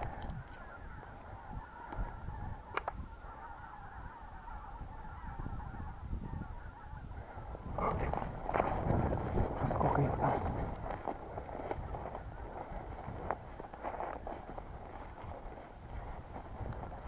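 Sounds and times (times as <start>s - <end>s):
geese honking: 0.0s - 8.1s.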